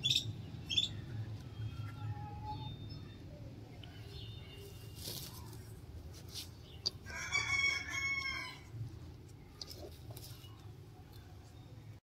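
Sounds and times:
rooster crowing: 7.1 - 8.7.

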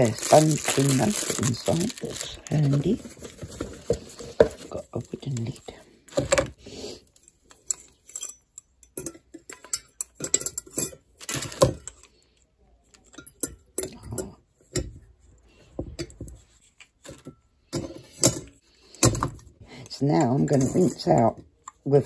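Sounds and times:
metal clinking on glass teapot: 7.6 - 11.1.

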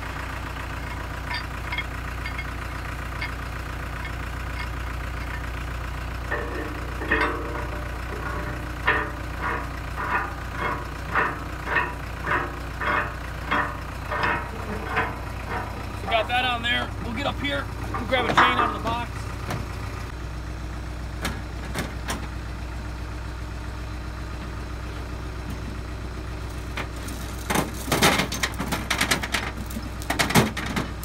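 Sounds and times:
engine idling: 0.0 - 31.0
metal shackle pin clinking and squeaking: 0.8 - 2.5, 3.2 - 3.4, 4.0 - 5.4.

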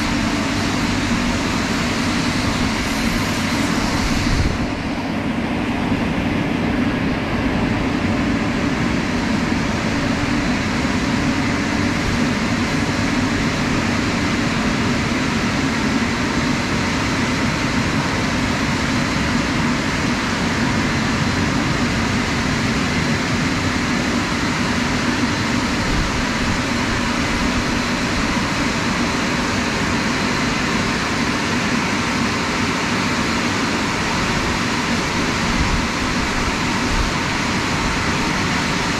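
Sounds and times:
car wash blowers rushing air: 0.0 - 38.9.

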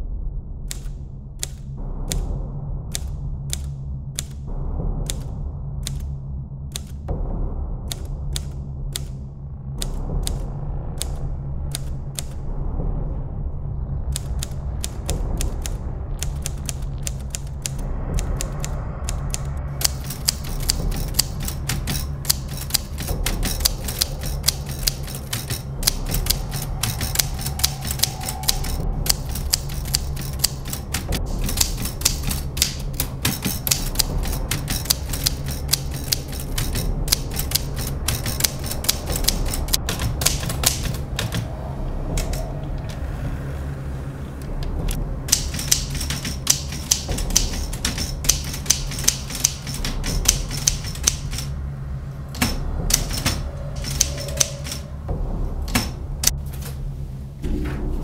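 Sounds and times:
low steady hum: 0.0 - 58.0
typewriter key strikes: 14.2 - 41.5, 42.2 - 42.5, 44.8 - 51.5, 52.4 - 54.9, 55.7 - 56.0.

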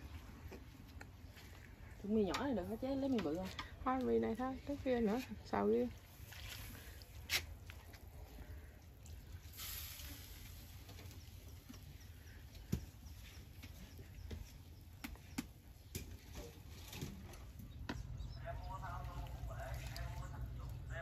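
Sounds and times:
short hiss: 9.6 - 10.6.

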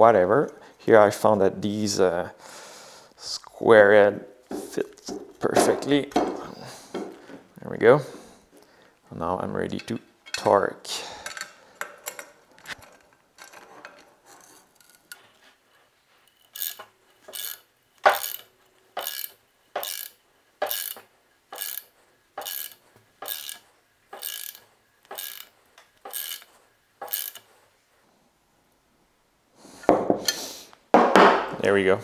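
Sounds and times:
faint handling noise: 4.5 - 17.4
ratchet wrench clicking: 16.5 - 23.6, 24.2 - 25.5, 26.1 - 27.5.

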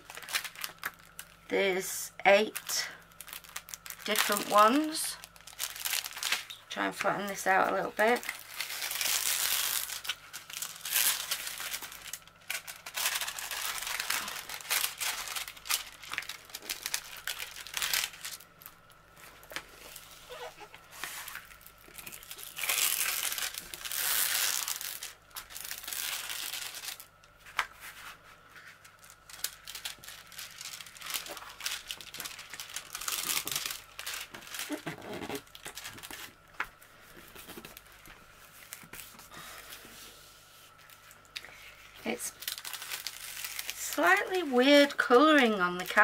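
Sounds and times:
plastic film rustling and crinkling: 0.0 - 46.0.

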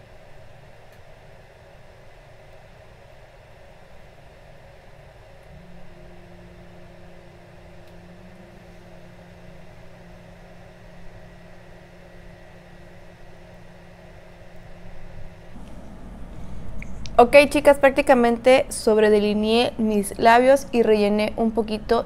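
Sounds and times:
low mechanical hum: 0.0 - 22.0
room noise: 0.0 - 22.0.

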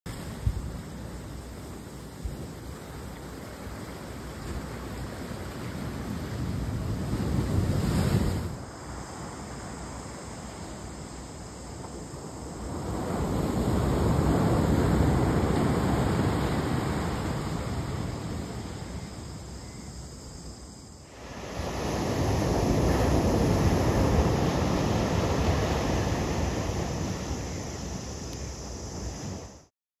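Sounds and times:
wind on microphone: 0.1 - 8.7, 21.1 - 29.7
ocean surf breaking on beach: 0.1 - 19.5, 21.0 - 29.7.

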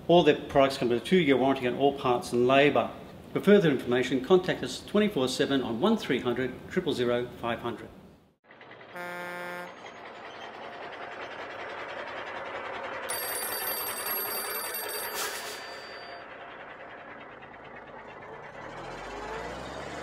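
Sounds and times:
short pitched tone: 8.9 - 10.1
old telephone bell ringing: 13.1 - 17.1.

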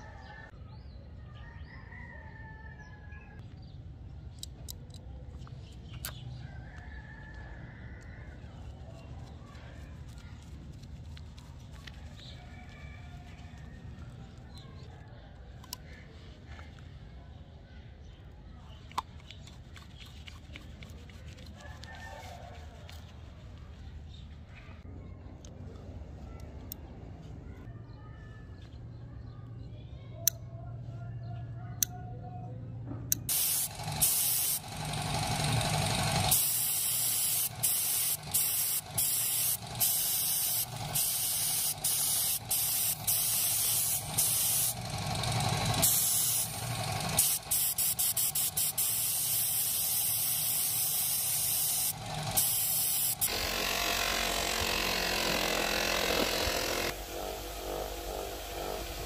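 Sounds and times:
buffing wheel motor running: 33.3 - 59.0
spray paint hissing: 33.3 - 59.0.

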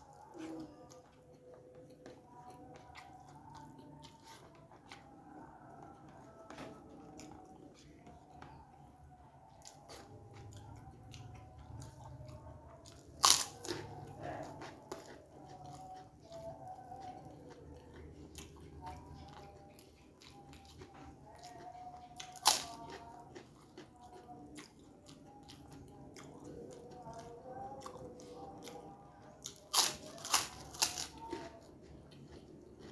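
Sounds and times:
close-up chewing: 0.0 - 32.9
crunch of biting cracker: 13.2 - 13.8, 29.4 - 31.2.

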